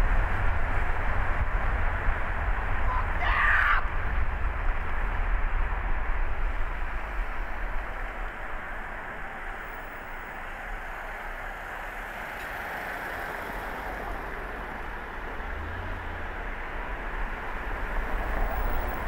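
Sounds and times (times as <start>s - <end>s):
low car engine rumble: 0.0s - 19.0s
road and tyre noise: 0.0s - 19.0s.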